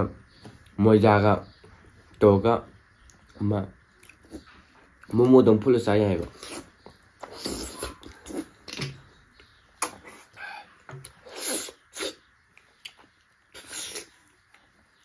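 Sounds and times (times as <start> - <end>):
lip smacks: 3.0 - 5.2, 6.3 - 14.6
wet chewing: 3.0 - 5.2
sucking slurps: 6.3 - 8.6, 13.5 - 14.3.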